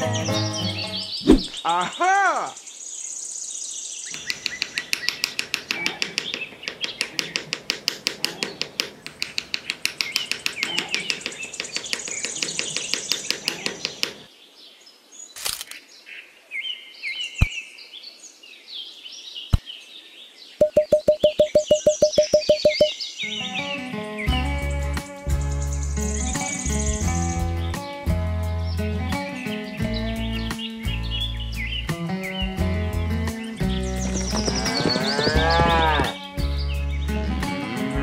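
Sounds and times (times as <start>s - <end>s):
birds chirping: 0.0s - 27.9s, 28.7s - 38.0s
insects chirping: 2.6s - 14.3s
sharp taps: 4.2s - 14.2s, 20.6s - 22.9s
fast even chirp: 20.6s - 23.0s.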